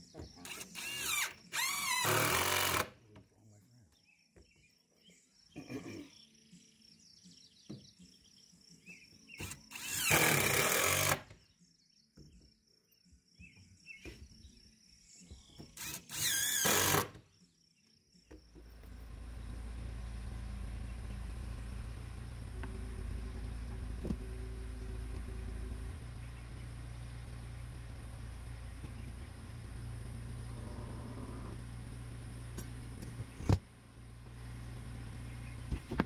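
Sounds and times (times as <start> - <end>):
cordless drill whirring: 0.4 - 2.9, 9.4 - 11.3, 15.8 - 17.2
steady low rumble: 18.7 - 35.8.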